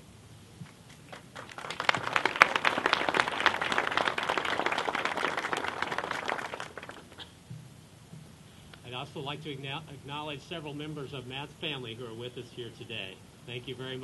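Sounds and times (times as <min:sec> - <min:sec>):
crowd applauding: 0:01.1 - 0:07.2.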